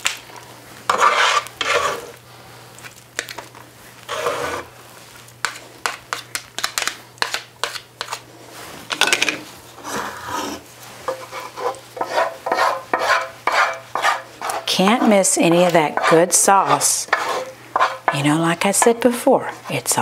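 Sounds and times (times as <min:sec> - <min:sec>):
spatula scraping skillet: 0:00.9 - 0:02.2, 0:04.0 - 0:04.7, 0:09.7 - 0:20.0.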